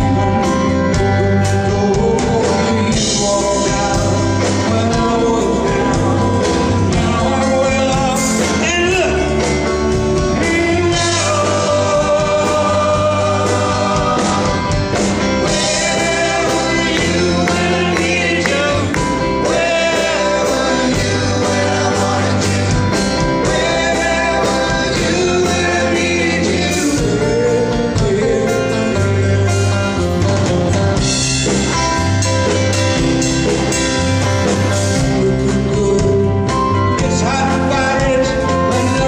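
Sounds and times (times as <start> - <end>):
person singing: 0.0 - 30.5, 34.8 - 39.0
live band playing: 0.0 - 39.0.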